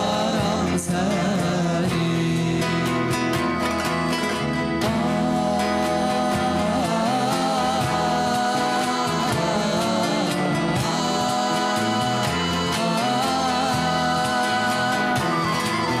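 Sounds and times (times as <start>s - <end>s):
cajon beat: 0.0s - 16.0s
person singing melody: 0.0s - 16.0s
strummed acoustic guitars: 0.0s - 16.0s.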